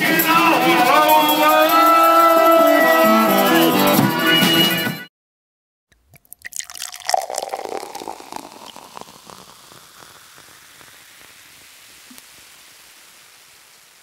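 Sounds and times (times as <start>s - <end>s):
steady low hiss: 8.7s - 14.0s.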